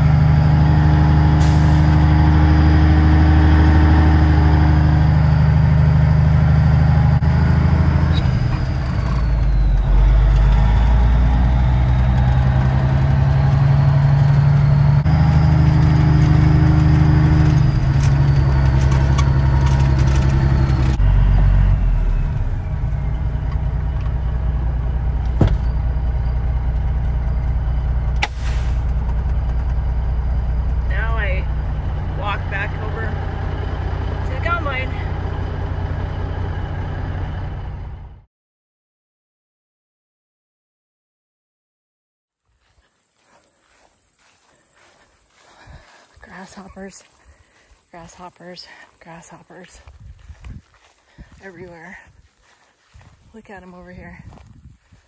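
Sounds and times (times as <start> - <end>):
truck engine shifting gears: 0.0 - 38.3.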